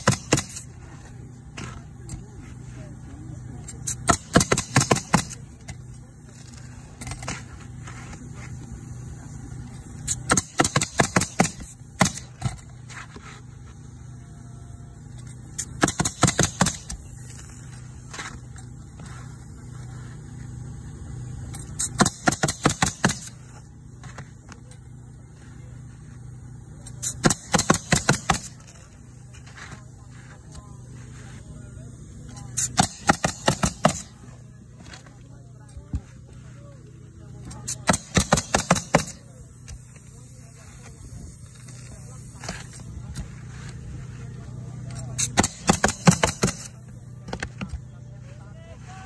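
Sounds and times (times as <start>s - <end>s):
pneumatic nailer firing into shingles: 0.0s - 1.8s, 3.8s - 8.3s, 9.8s - 13.3s, 15.2s - 19.3s, 21.5s - 24.4s, 26.8s - 29.6s, 32.4s - 35.1s, 37.4s - 43.2s, 44.9s - 47.7s.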